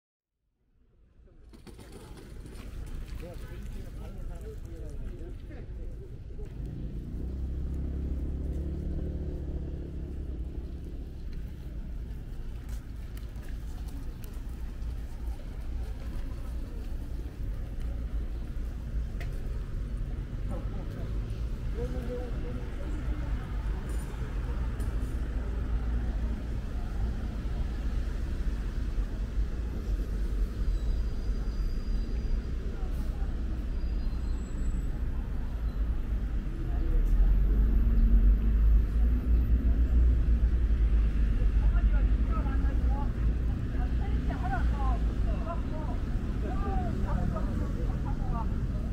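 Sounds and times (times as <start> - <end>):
road traffic rumble: 0.8 - 48.9
vehicle engine passing: 6.4 - 14.0.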